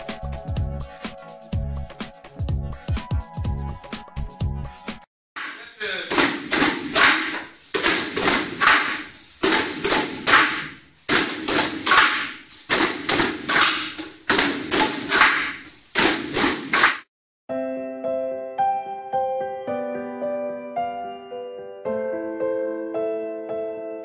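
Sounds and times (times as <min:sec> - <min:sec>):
group drumming on buckets and pots: 0:06.1 - 0:16.9.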